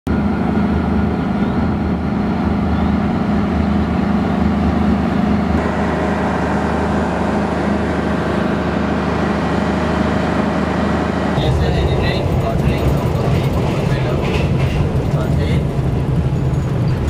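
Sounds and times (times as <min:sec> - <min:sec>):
locomotive engine droning: 0:00.1 - 0:17.0.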